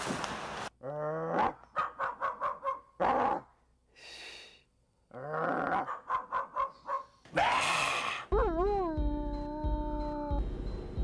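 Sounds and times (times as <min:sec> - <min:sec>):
dog yipping: 0:01.8 - 0:03.4, 0:05.8 - 0:07.1.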